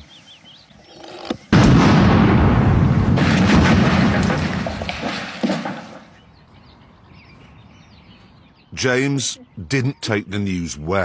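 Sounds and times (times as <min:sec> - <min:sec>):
big explosion: 0:01.5 - 0:05.9
sharp crack: 0:01.5 - 0:06.2.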